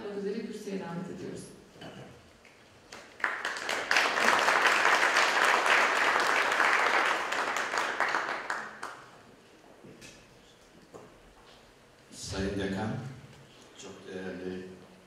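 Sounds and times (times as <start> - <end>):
audience applauding: 2.9 - 9.2.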